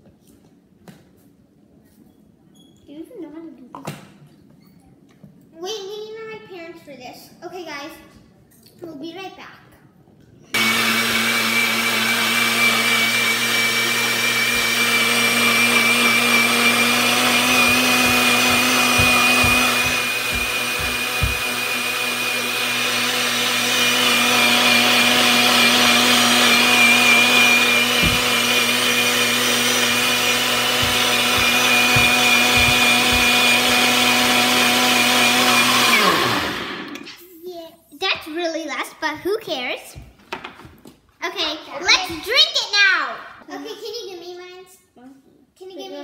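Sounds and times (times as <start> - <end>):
blender motor whining: 10.6 - 37.1
low knocks in blender: 17.6 - 21.7, 27.9 - 28.5, 30.6 - 33.6.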